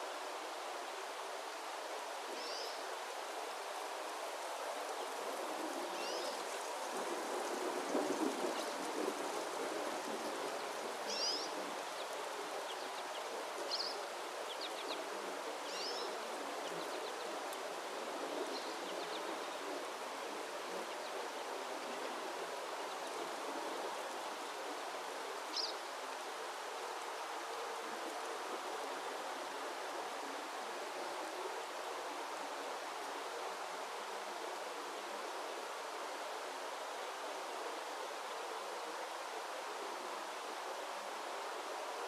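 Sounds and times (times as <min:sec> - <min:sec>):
rushing water: 0:00.0 - 0:42.0.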